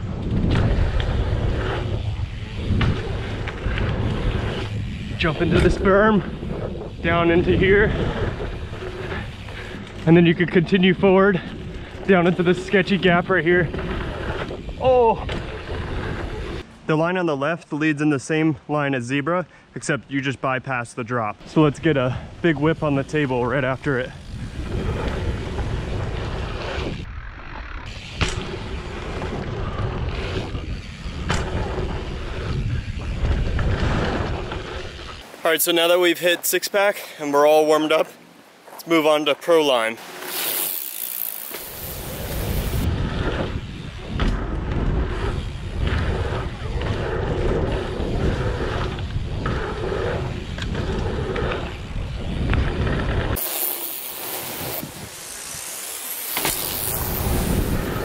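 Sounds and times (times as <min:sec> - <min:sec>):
bike landing clack: 0:00.0 - 0:07.0, 0:24.4 - 0:35.2, 0:40.0 - 0:58.0
wind rushing over microphone: 0:00.0 - 0:16.7, 0:21.4 - 0:35.2, 0:40.7 - 0:58.0
bike tyres rolling on dirt: 0:00.0 - 0:18.5, 0:19.8 - 0:58.0.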